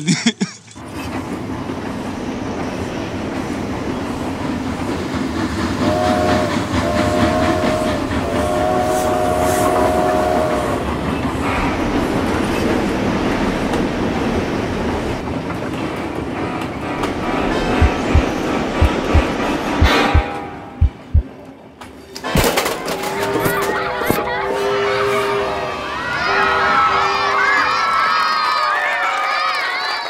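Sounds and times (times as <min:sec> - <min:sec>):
train wheels clattering on rails: 0:00.8 - 0:24.2
train horn blasts: 0:05.8 - 0:10.8, 0:24.4 - 0:26.6.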